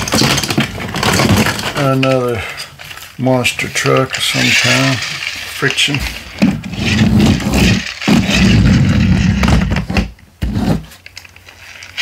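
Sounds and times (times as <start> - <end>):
toy truck flywheel whirring: 4.1 - 6.0, 6.6 - 9.4.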